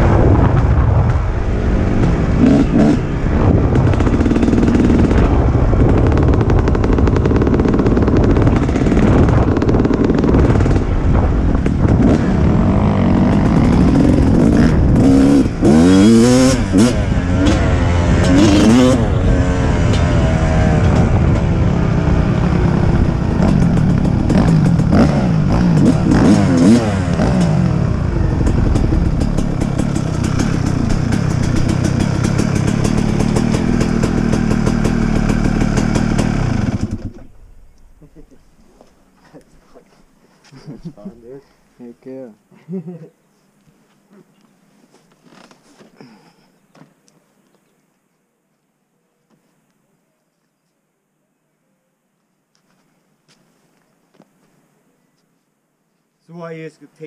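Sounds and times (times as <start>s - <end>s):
dirt bike engine revving: 0.6s - 37.4s.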